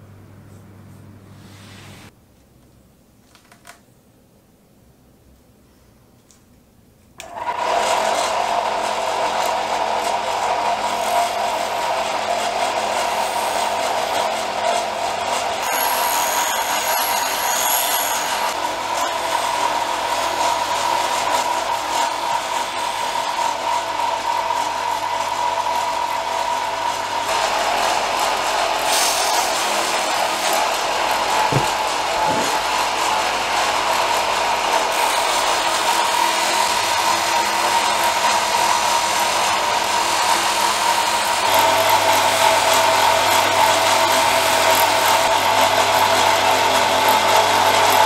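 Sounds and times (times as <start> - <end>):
polishing wheel motor whining: 27.1 - 48.0
axe head grinding on wheel: 29.2 - 32.7.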